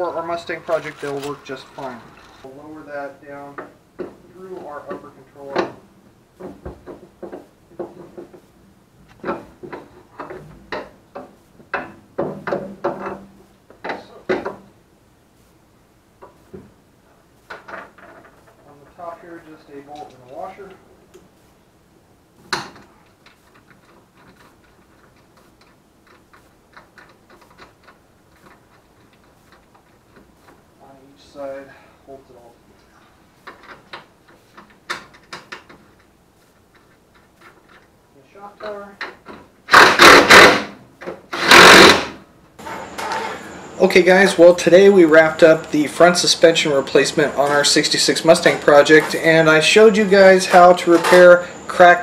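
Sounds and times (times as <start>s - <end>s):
metal knocks and clunks: 9.2s - 14.7s.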